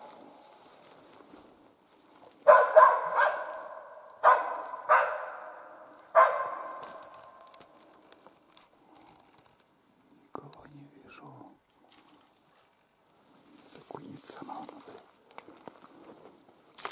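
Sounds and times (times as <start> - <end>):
dog barking with echo: 2.4 - 7.0.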